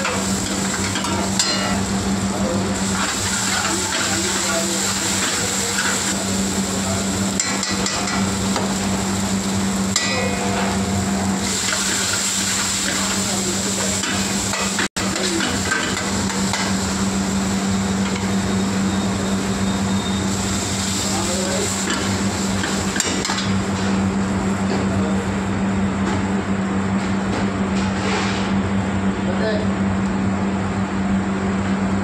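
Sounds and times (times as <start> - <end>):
onions sizzling in a pan: 0.0 - 19.6, 20.2 - 23.2.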